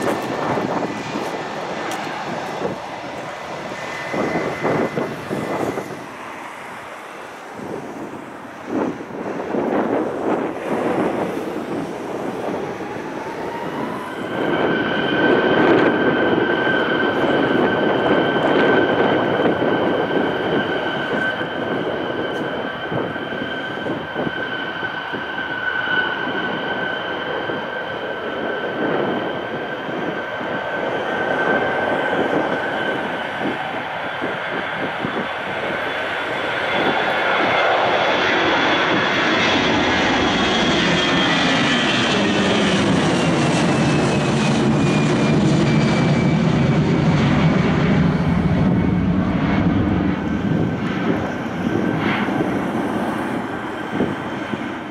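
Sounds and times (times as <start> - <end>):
jet engines spooling up: 0.0 - 54.9.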